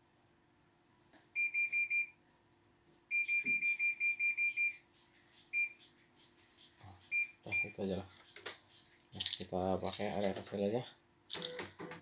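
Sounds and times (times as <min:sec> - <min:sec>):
rapid high beeps: 0:03.1 - 0:04.8, 0:05.5 - 0:05.8, 0:07.1 - 0:07.8.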